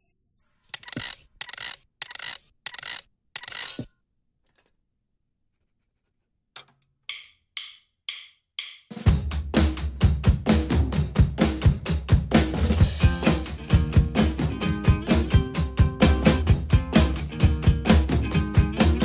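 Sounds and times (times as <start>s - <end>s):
drum kit beat with bass drum: 7.1s - 19.0s.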